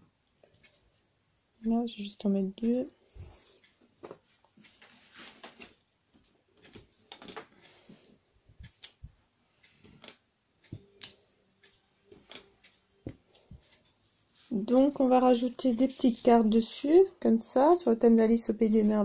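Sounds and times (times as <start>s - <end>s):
faint handling sounds: 2.6s - 17.0s, 18.4s - 19.0s.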